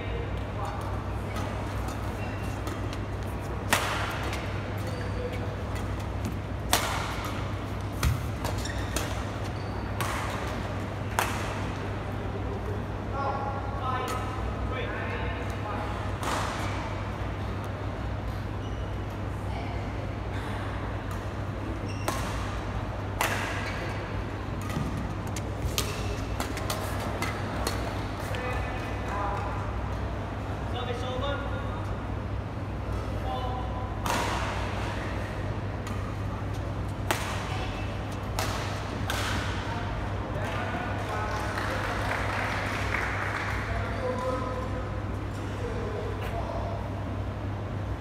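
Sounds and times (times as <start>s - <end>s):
steady low hum: 0.0s - 48.0s
rackets hitting shuttlecock: 1.2s - 11.8s, 21.9s - 24.0s, 36.9s - 39.7s.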